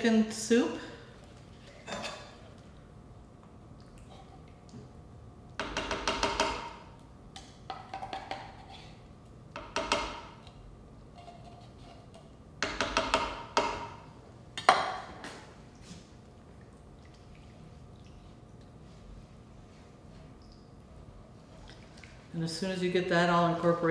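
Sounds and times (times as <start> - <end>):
utensil scraping inside a tin can: 11.1 - 12.1.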